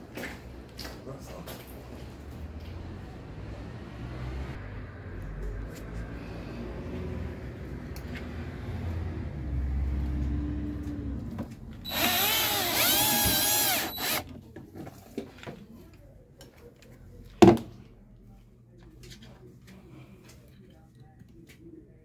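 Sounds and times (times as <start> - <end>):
power drill into metal: 11.9 - 14.2.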